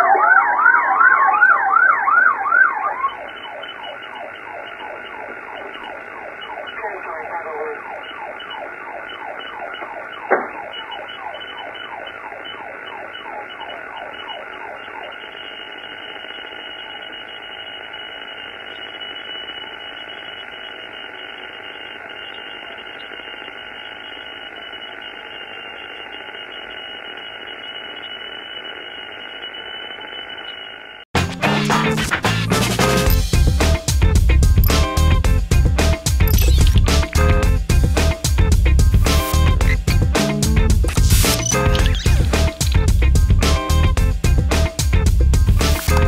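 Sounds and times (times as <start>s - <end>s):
police siren yelping: 0.0s - 31.0s, 39.1s - 44.2s
steady hum: 2.3s - 31.1s, 32.0s - 46.0s
sharp click: 36.2s - 37.2s, 40.9s - 42.9s.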